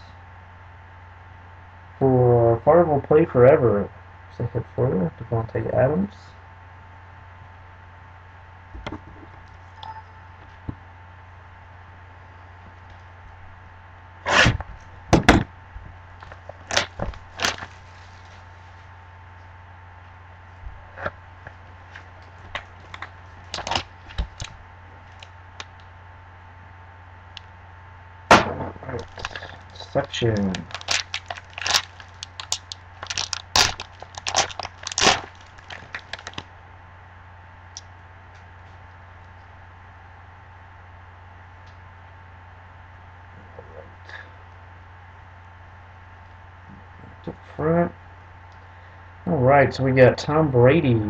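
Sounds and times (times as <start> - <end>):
foil pack tearing and crinkling: 16.2 - 18.5, 22.5 - 25.3, 29.0 - 36.5.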